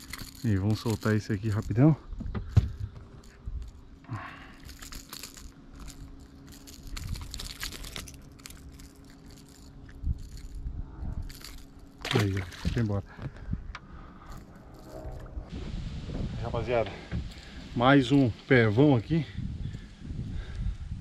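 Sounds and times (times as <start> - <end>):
faint steady hum: 0.0 - 21.0
fishing lure clicks and jingles: 4.5 - 12.7.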